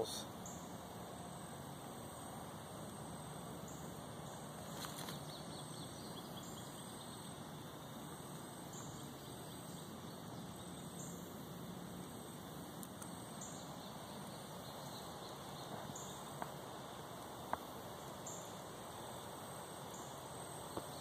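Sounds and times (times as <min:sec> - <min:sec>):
insects droning: 0:00.0 - 0:21.0
brief crackle: 0:04.7 - 0:05.4.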